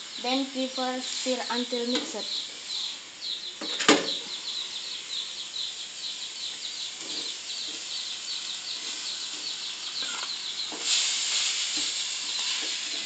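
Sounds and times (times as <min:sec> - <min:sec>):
high chirping: 0:00.0 - 0:11.0
rice frying in a metal pan: 0:00.0 - 0:13.0
spatula scraping a pan: 0:10.0 - 0:13.0.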